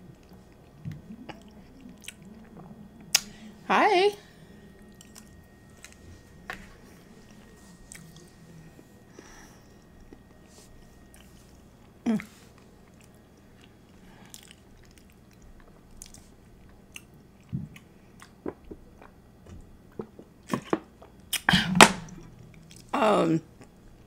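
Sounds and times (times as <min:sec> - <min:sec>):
person chewing: 0:00.1 - 0:03.3, 0:04.7 - 0:08.3, 0:09.8 - 0:19.2, 0:19.8 - 0:21.5, 0:22.2 - 0:22.9.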